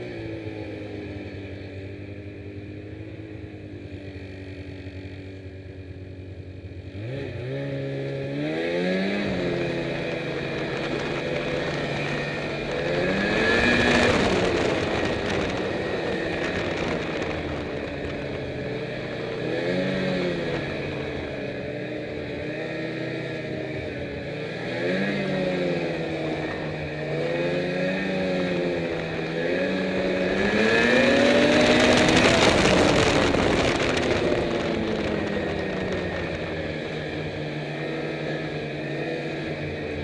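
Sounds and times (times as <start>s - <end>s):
snowmobile engine revving: 6.8s - 40.0s
rush of noise: 27.8s - 39.4s.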